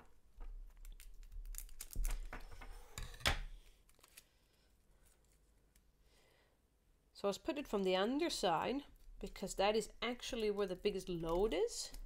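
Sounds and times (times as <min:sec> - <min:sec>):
adhesive tape crackling: 0:00.6 - 0:02.4.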